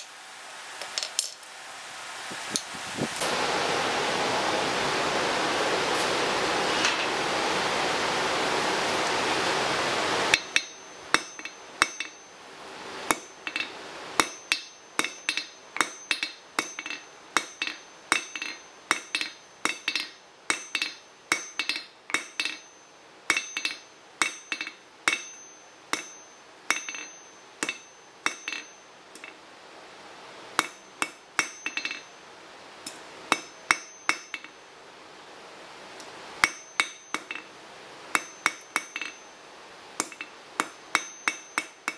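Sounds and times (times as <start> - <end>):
hammer blows ringing on anvil: 10.3 - 12.2, 13.1 - 29.4, 30.6 - 32.1, 33.3 - 34.5, 36.4 - 37.4, 38.2 - 39.3, 40.0 - 41.9.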